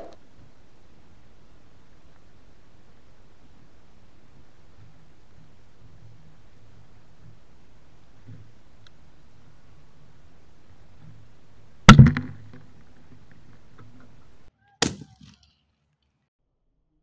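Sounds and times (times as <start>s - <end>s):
quieter crack: 11.8s - 15.5s.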